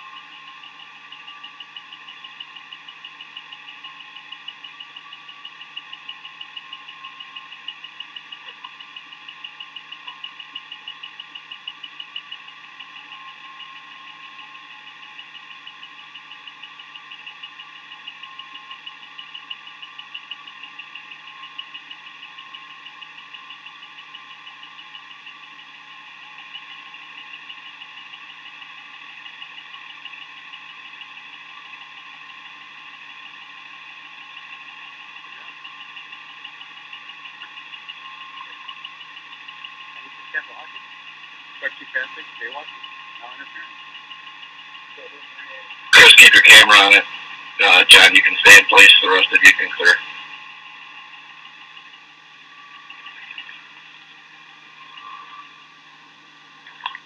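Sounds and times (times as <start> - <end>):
car engine idling: 0.0 - 57.0
electrical hum: 33.6 - 57.0.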